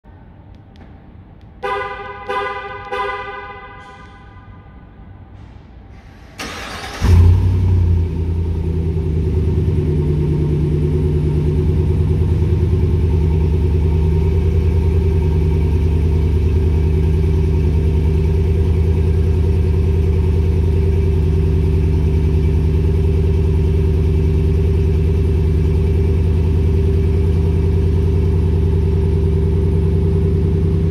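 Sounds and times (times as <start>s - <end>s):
pickup engine revving and idling: 7.0s - 30.9s.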